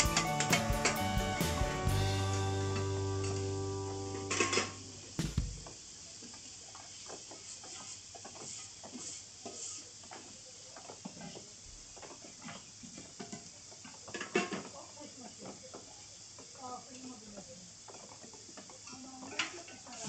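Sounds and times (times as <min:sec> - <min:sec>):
meat sizzling on a griddle: 0:05.7 - 0:20.0.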